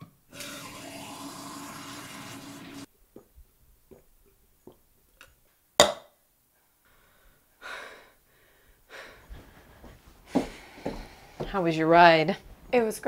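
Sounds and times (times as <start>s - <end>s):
heavy out-breaths: 6.8s - 11.6s.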